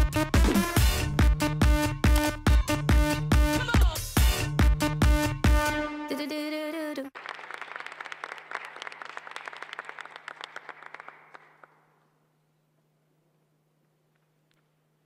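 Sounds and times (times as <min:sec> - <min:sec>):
electronic dance music: 0:00.0 - 0:06.4
audience applauding: 0:07.2 - 0:12.0.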